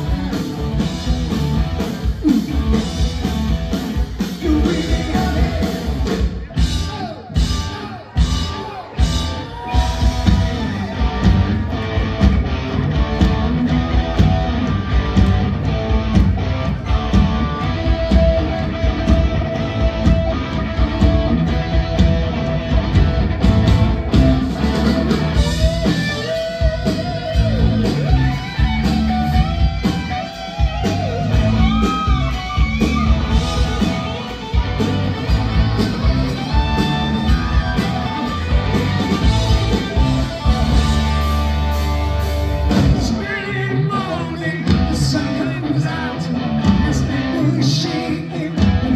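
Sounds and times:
rock band playing: 0:00.0 - 0:48.9
guitar bent wavering notes: 0:09.0 - 0:43.2.

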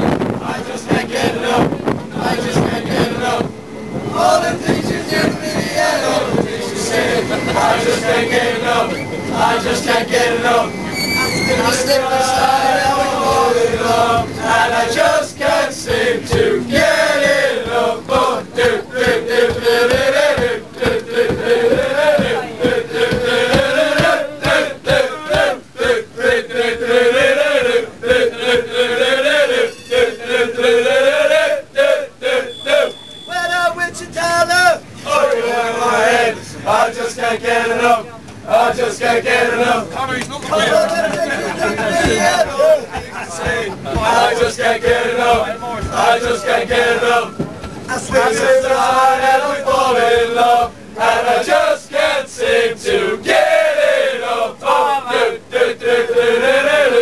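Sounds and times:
crowd of men chanting: 0:00.0 - 0:57.0.

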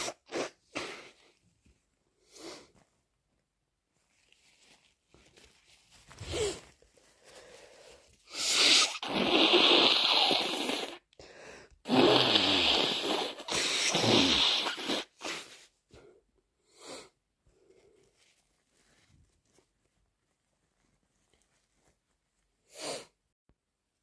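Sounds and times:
person blowing nose: 0:00.0 - 0:01.4, 0:02.2 - 0:02.7, 0:06.2 - 0:06.7, 0:08.2 - 0:11.2, 0:11.9 - 0:15.7, 0:22.6 - 0:23.2
person sniffing: 0:00.0 - 0:01.4, 0:07.3 - 0:11.1, 0:11.9 - 0:15.7, 0:22.7 - 0:23.2.

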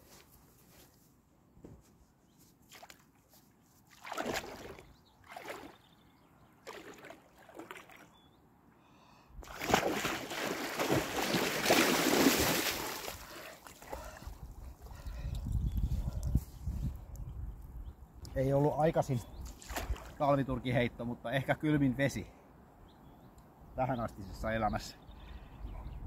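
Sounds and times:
legs sloshing through water: 0:02.6 - 0:06.0, 0:06.6 - 0:08.2, 0:09.4 - 0:15.0, 0:19.4 - 0:20.2
loud splashing: 0:03.9 - 0:05.8, 0:09.4 - 0:14.0.

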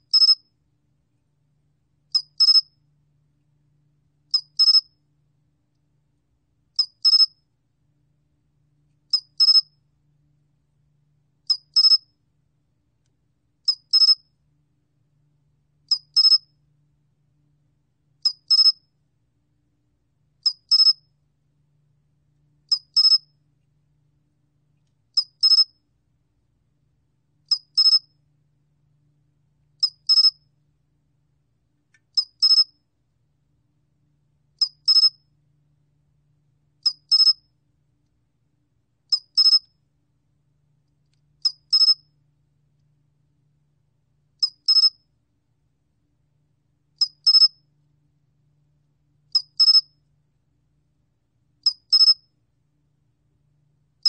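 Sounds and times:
cricket chirping: 0:22.7 - 0:23.2, 0:29.8 - 0:30.4, 0:39.1 - 0:39.6, 0:41.4 - 0:42.0, 0:44.4 - 0:45.0, 0:47.0 - 0:47.6, 0:49.4 - 0:49.8, 0:51.6 - 0:52.2.

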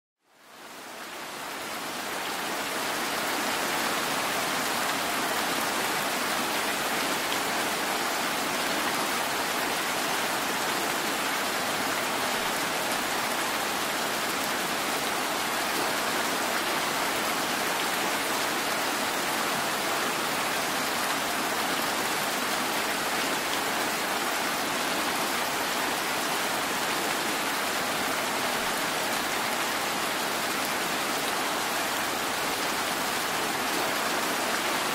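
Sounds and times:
steady rain hiss: 0:00.2 - 0:34.9.

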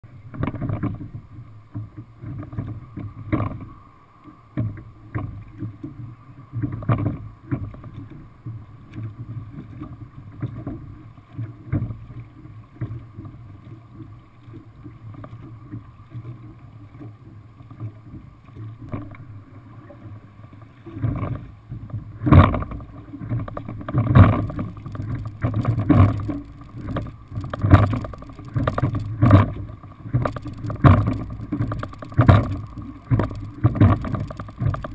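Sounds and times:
wind: 0:00.0 - 0:34.9
oars knocking: 0:22.2 - 0:34.9
water wash: 0:22.2 - 0:34.9.

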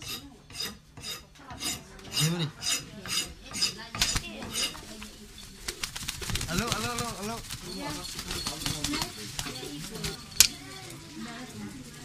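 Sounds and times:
chicken flapping wings: 0:04.0 - 0:11.0.

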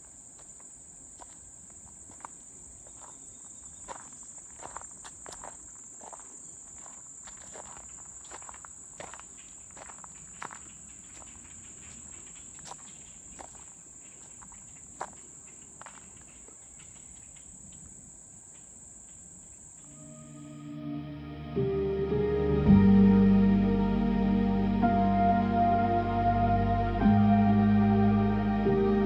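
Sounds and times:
footsteps on dirt trail: 0:00.0 - 0:16.9
high-pitched insect drone: 0:19.7 - 0:20.8
soft music: 0:19.8 - 0:29.0.

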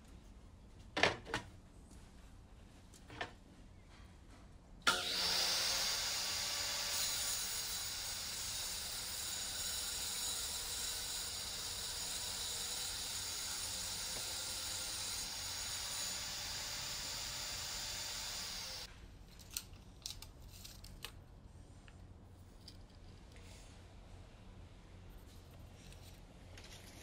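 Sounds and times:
table saw whining: 0:04.9 - 0:18.9.

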